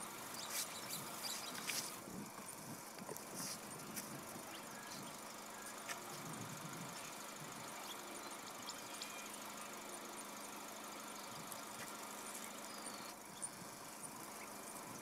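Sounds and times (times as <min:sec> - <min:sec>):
steady hiss: 0:00.0 - 0:15.0
vehicle engine idling: 0:00.0 - 0:15.0.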